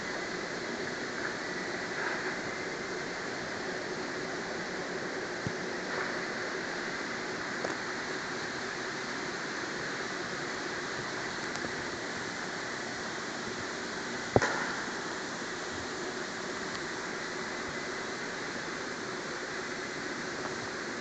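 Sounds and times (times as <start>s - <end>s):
workshop background hiss: 0.0s - 21.0s
sharp knock: 14.4s - 14.9s.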